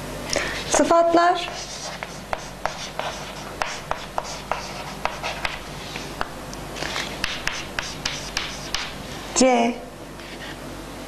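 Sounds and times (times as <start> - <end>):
chalk scratching on chalkboard: 0.6 - 9.0
chalk tapping on chalkboard: 1.4 - 6.3, 7.2 - 9.0.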